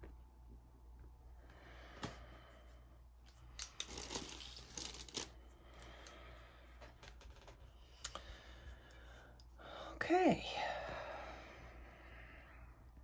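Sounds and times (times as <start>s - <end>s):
plastic sheet crinkling: 3.4s - 5.4s.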